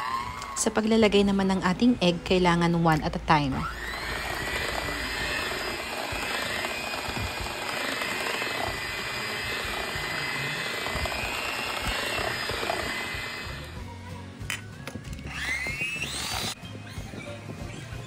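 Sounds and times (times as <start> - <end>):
electric hand mixer whining: 3.4 - 13.8, 15.1 - 16.6.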